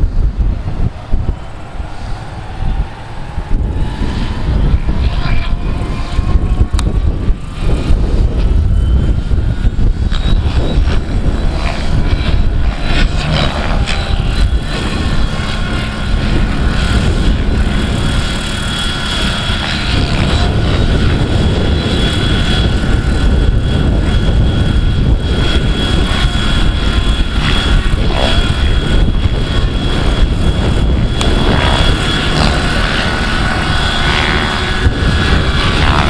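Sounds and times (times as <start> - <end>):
model helicopter rotor whine: 0.0 - 36.0
wind buffeting microphone: 0.0 - 36.0.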